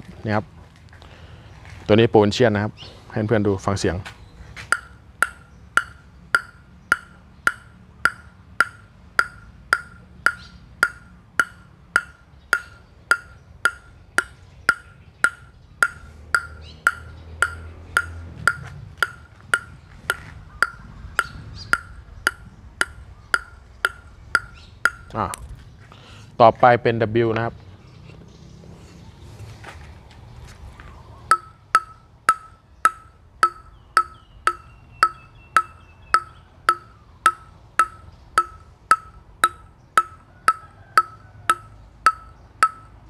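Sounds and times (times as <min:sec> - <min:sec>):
ping-pong ball bouncing on wood: 0:04.7 - 0:25.2, 0:31.3 - 0:43.0.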